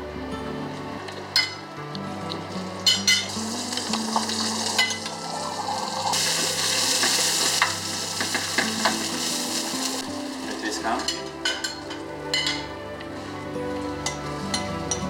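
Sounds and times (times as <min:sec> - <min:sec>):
vegetables sizzling in frying pan: 0:02.8 - 0:12.0
spoon knocking pan: 0:06.9 - 0:09.2.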